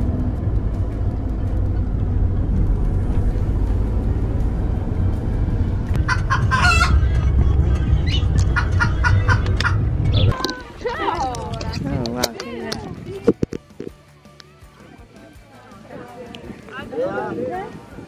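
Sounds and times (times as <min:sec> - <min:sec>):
car cabin rumble: 0:00.0 - 0:10.4
rooster crowing: 0:06.0 - 0:07.4
chicken clucking: 0:06.0 - 0:10.5.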